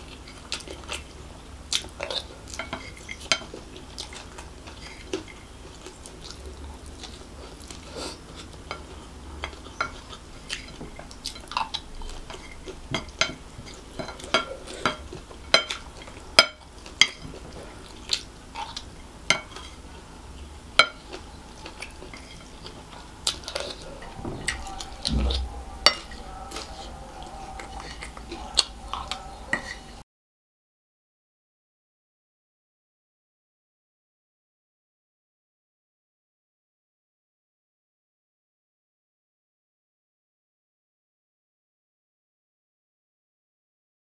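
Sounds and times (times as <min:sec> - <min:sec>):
chewing: 0:00.0 - 0:30.0
spoon scraping a ceramic plate: 0:22.0 - 0:28.2, 0:28.9 - 0:30.0.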